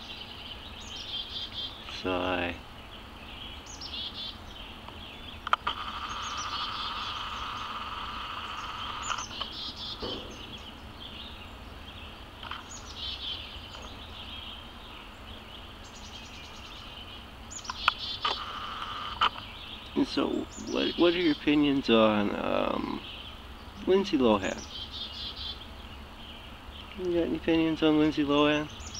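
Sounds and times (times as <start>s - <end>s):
birds chirping: 0.0s - 28.9s
sharp clicks: 4.8s - 6.8s, 8.3s - 10.7s, 17.6s - 20.0s
high-pitched background drone: 5.4s - 11.7s.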